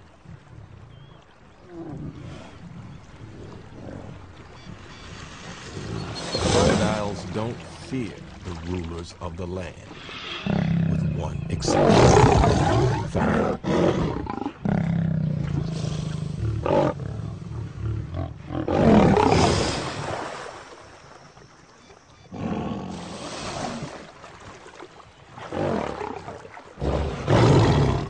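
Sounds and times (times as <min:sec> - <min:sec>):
lion growling and roaring: 0:10.0 - 0:19.6, 0:22.3 - 0:23.2, 0:25.4 - 0:28.0.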